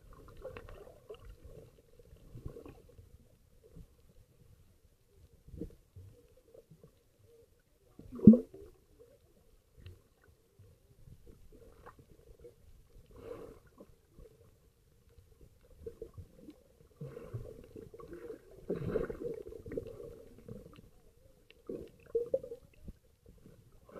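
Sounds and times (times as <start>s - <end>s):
underwater gurgling bubbles: 0.0s - 4.1s, 7.8s - 14.6s, 15.2s - 23.9s
swimmers moving underwater: 15.7s - 23.9s.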